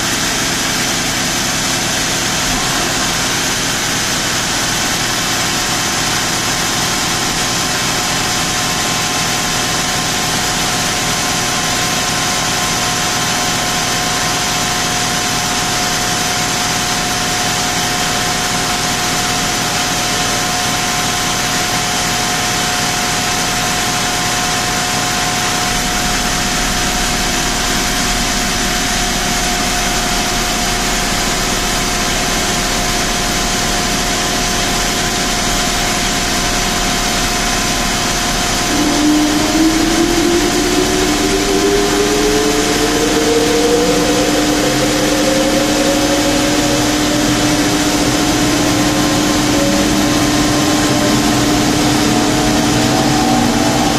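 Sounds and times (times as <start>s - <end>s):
thin high whine: 24.7s - 53.9s
car engine idling: 34.6s - 53.9s.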